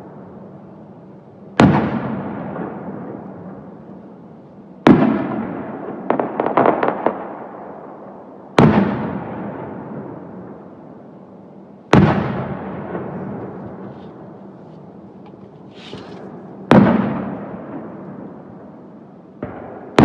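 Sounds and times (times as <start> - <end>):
firework booms: 1.6 - 3.6, 4.8 - 7.5, 8.6 - 10.0, 11.9 - 14.2, 15.9 - 18.5.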